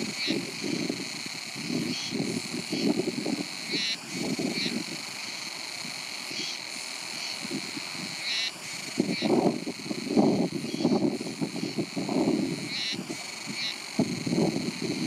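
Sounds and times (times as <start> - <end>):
wind buffeting microphone: 0.0 - 5.2, 8.8 - 15.0
high-pitched insect chorus: 0.0 - 15.0.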